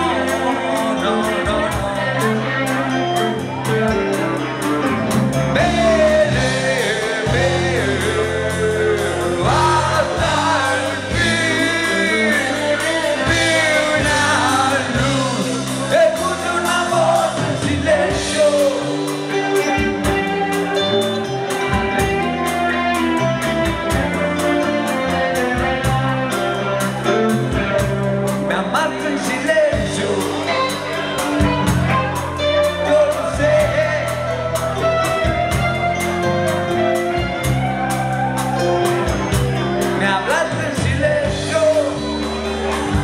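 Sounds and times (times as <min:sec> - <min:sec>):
man singing: 0:00.0 - 0:22.0, 0:27.5 - 0:35.6, 0:38.8 - 0:42.8
rock band playing: 0:00.0 - 0:43.0.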